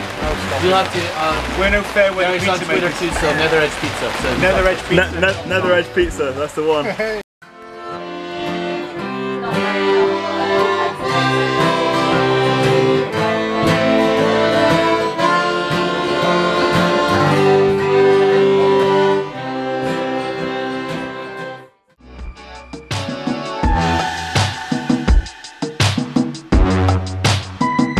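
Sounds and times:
accordion: 7.4s - 25.2s
acoustic guitar strumming: 7.4s - 27.9s.

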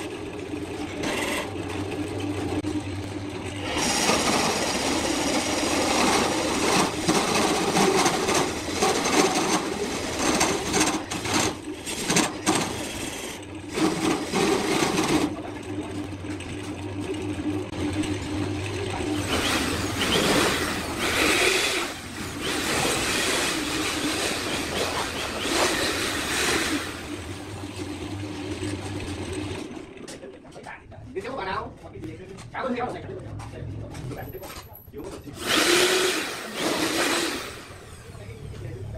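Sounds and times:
lathe motor humming: 0.0s - 30.0s
lathe tool cutting wood: 3.6s - 15.3s, 19.2s - 27.4s, 35.4s - 37.9s.

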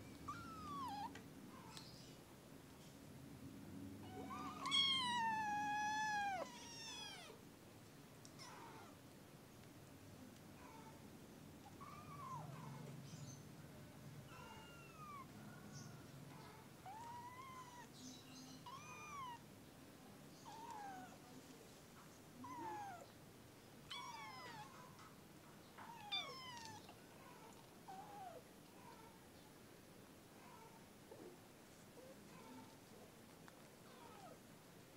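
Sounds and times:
kittens mewing: 0.2s - 1.8s, 4.0s - 7.4s.

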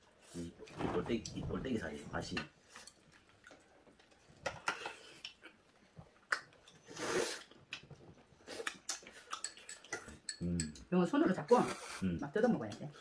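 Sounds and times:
chewing and slurping: 6.3s - 10.4s
utensils clicking against dishes: 9.4s - 10.8s.

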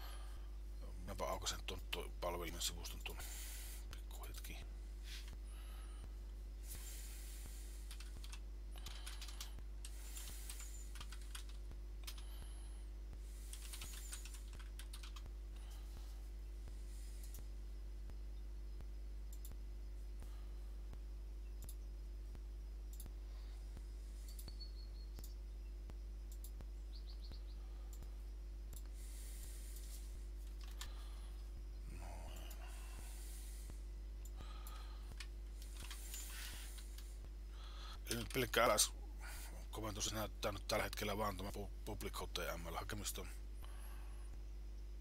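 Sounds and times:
low electrical hum: 0.0s - 45.0s
keyboard typing: 7.8s - 12.3s, 13.5s - 15.3s, 30.4s - 30.9s, 34.6s - 37.1s
faint clicks: 18.8s - 19.6s, 21.6s - 23.2s, 23.8s - 29.0s.

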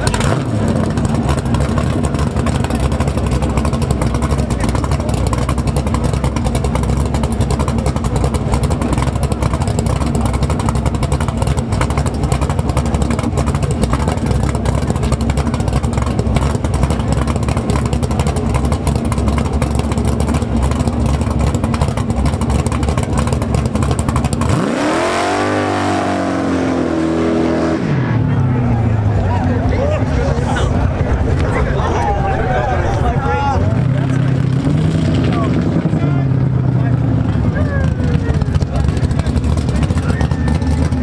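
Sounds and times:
drag car engine idling roughly: 0.0s - 25.7s, 28.3s - 41.0s
tyres spinning in a burnout: 0.0s - 41.0s.

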